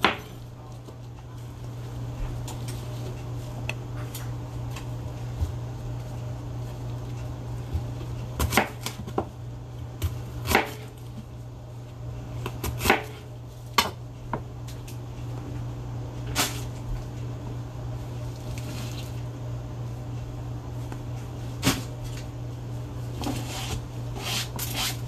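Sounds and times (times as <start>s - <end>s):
knife chopping on cutting board: 8.4s - 9.3s, 10.0s - 10.9s, 12.4s - 13.2s.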